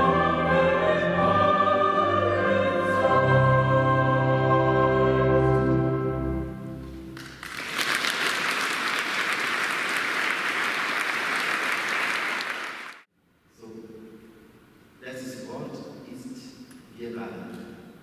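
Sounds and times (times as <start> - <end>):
choir holding a chord: 0.0 - 6.6
audience applause: 7.2 - 13.1.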